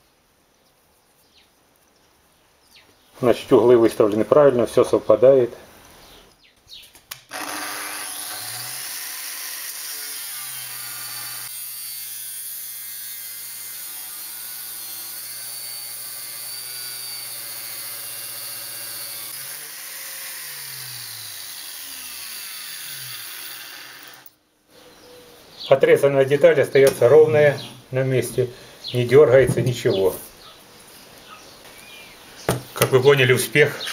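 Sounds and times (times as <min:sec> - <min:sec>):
angle grinder cutting steel: 0:07.3 - 0:24.4.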